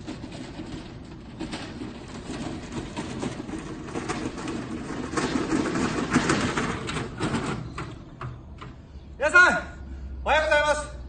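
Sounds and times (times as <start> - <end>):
hand cart rattling over grass: 0.0 - 8.5.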